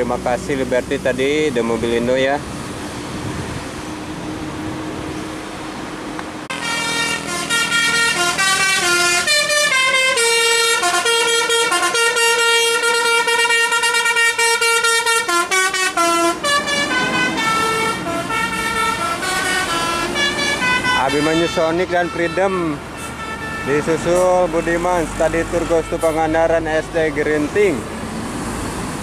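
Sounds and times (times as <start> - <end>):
bus engine running: 0.0 - 29.0
multi-tone musical bus horn: 6.5 - 26.6.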